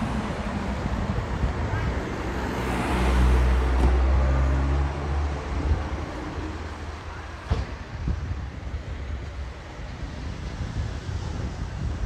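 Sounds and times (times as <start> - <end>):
vehicle driving past: 2.3 - 6.8.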